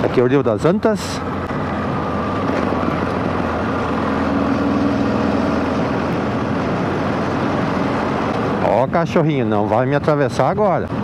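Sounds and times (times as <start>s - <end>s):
road noise: 0.0s - 11.0s.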